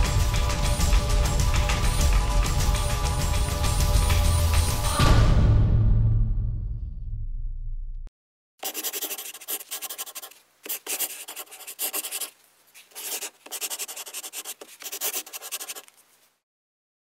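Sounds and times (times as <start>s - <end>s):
pencil scratching on paper: 8.6s - 15.9s.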